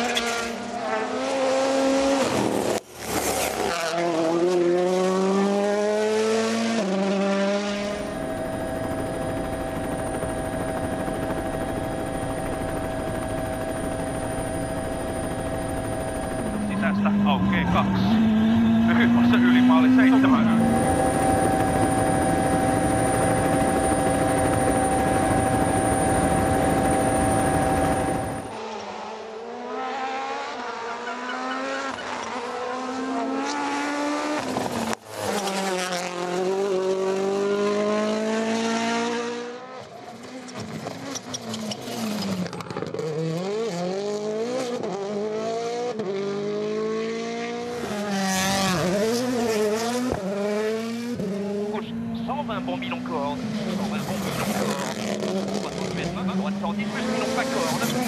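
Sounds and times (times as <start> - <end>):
rally car engines revving: 0.0 - 8.2, 16.4 - 23.2, 28.2 - 58.0
high engine whine: 1.9 - 29.2, 29.8 - 58.0.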